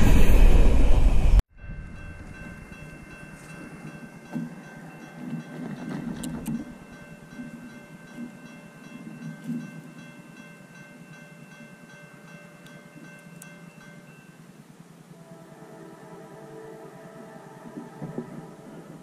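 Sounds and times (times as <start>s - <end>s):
freight train rolling on rails: 0.0s - 19.0s
faint steady high tones: 1.6s - 19.0s.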